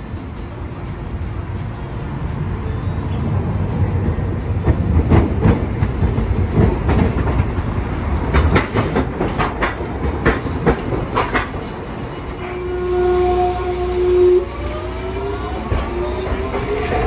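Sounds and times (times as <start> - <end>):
streetcar rumbling past: 0.0 - 17.0
wheels clacking over rails: 0.2 - 12.7.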